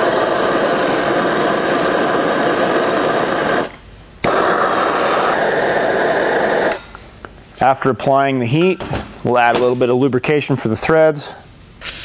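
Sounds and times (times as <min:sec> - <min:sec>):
gas torch flame hissing: 0:00.0 - 0:07.0.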